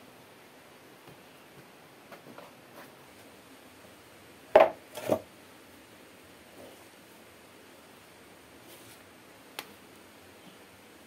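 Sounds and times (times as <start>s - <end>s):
hard object knocking: 4.6s - 5.2s.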